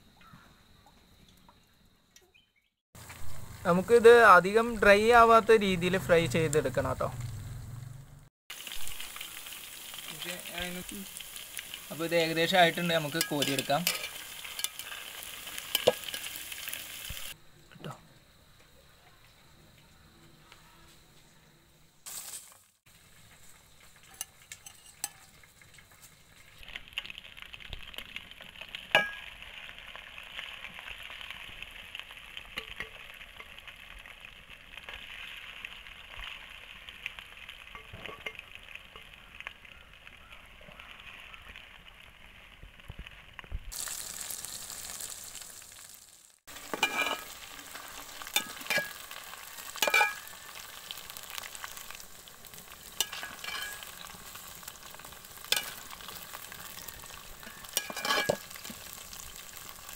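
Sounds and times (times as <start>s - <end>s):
chicken deep-frying in oil: 0.0s - 7.9s, 8.5s - 17.5s, 18.3s - 59.9s
metal spoon clinking on pot: 13.1s - 15.0s, 15.7s - 16.3s, 24.1s - 25.3s, 29.0s - 29.3s, 37.7s - 38.4s, 46.7s - 47.3s, 48.4s - 49.0s, 49.8s - 50.3s, 53.0s - 53.9s, 55.5s - 55.8s, 57.7s - 58.5s.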